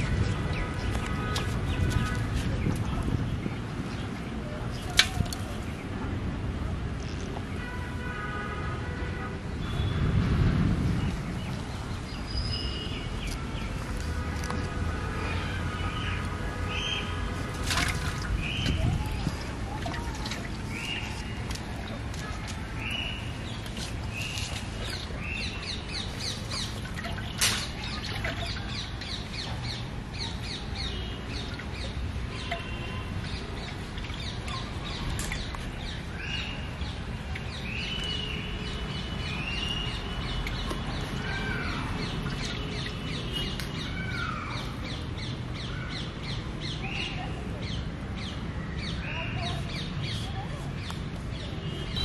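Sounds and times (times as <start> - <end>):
birds chirping and calling: 15.3 - 52.0.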